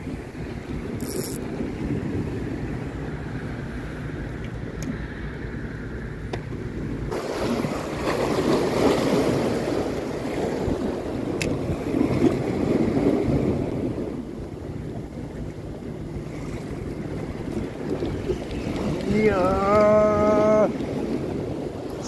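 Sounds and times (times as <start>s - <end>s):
wind buffeting microphone: 0.0s - 22.0s
waves breaking over rocks: 7.0s - 22.0s.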